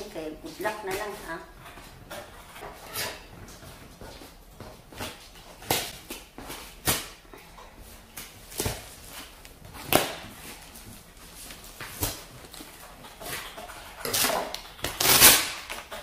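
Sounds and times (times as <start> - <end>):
scissors cutting tape and cardboard: 11.9 - 16.0.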